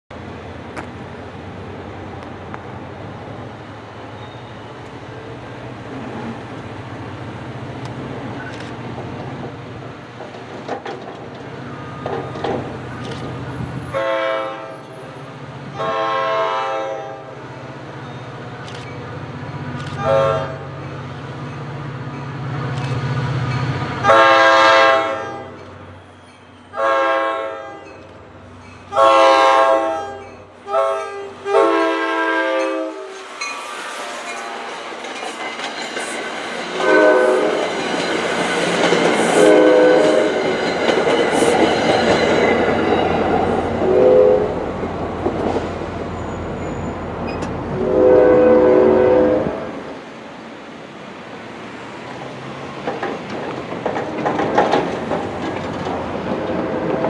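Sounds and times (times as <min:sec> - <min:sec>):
wheels rumbling on rail: 0:00.1 - 0:57.0
locomotive air horn blasts: 0:13.8 - 0:14.8, 0:15.7 - 0:17.4, 0:20.0 - 0:20.7, 0:24.0 - 0:25.6, 0:26.7 - 0:27.8, 0:28.9 - 0:33.2, 0:36.8 - 0:37.6, 0:39.4 - 0:40.4, 0:43.8 - 0:44.6, 0:47.7 - 0:49.8.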